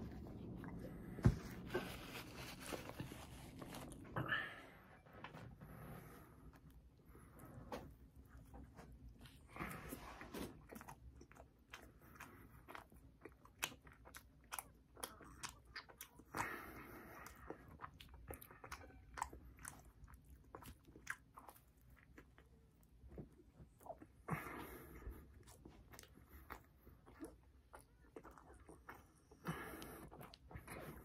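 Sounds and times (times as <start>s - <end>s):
person chewing: 7.4s - 31.0s.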